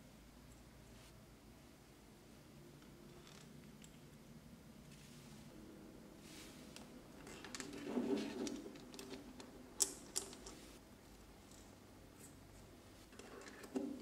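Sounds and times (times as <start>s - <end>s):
metal parts clicking and tapping: 6.8s - 10.6s.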